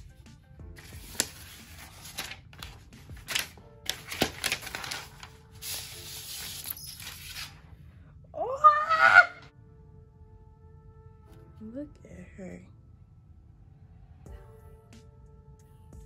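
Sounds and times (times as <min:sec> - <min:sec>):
plastic film peeling and crinkling: 0:00.8 - 0:07.6
high rising voice squeal: 0:08.4 - 0:09.5.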